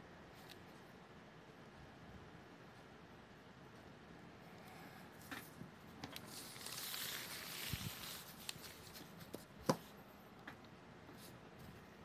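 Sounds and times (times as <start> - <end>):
paper rustling and sliding: 6.1 - 9.5.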